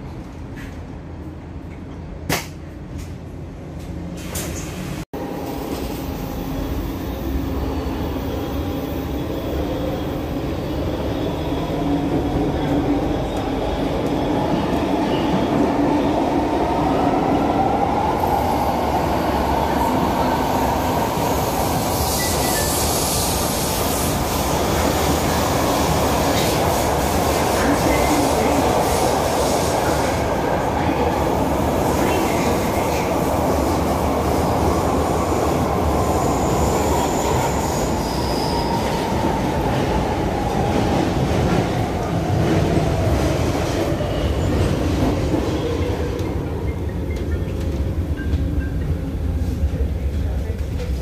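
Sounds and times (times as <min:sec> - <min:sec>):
train wheels rumbling on rails: 0:00.0 - 0:51.0.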